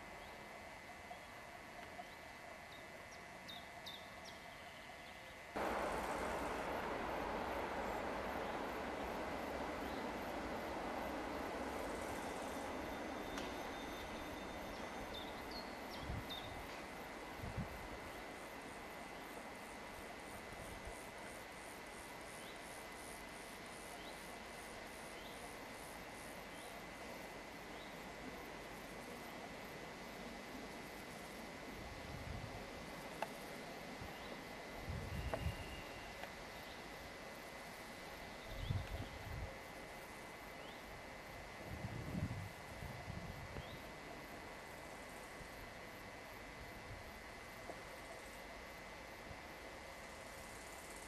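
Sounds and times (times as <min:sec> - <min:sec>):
faint outdoor ambience: 0:00.0 - 0:51.0
electric train noise: 0:05.6 - 0:25.1
insects chirping rhythmically: 0:05.6 - 0:31.8.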